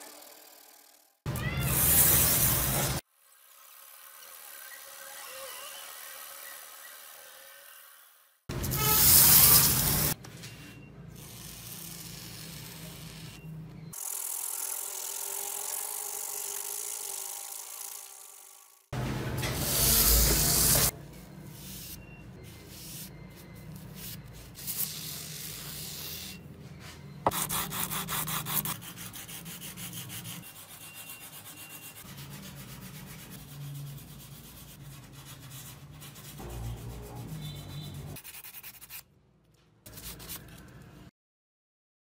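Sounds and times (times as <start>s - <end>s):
sandpaper scratching on metal: 8.7s - 10.2s, 19.6s - 20.9s, 27.3s - 39.0s.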